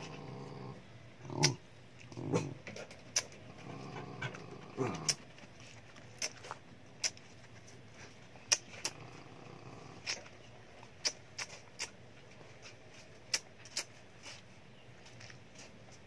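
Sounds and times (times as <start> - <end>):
faint low hum: 0.0 - 16.0
sharp clicks and smacks: 2.7 - 3.4, 4.9 - 7.6, 8.5 - 9.0, 10.0 - 12.0, 12.6 - 14.0.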